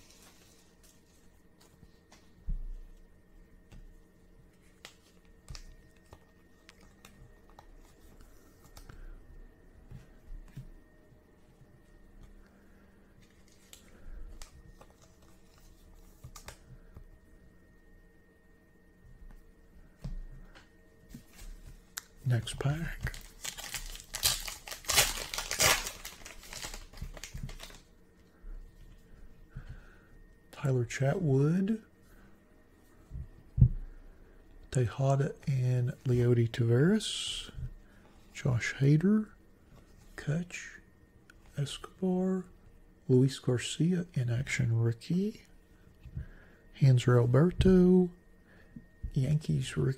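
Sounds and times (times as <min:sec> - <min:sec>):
plastic sleeve rustling: 0:22.4 - 0:27.9
hands crinkling a wrapper: 0:23.1 - 0:27.8.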